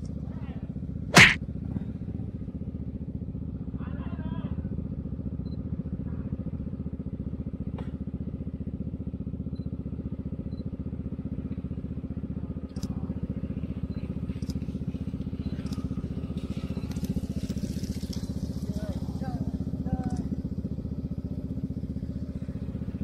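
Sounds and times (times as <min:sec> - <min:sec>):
scooter engine running: 0:00.0 - 0:23.0
sharp click: 0:01.2 - 0:01.4.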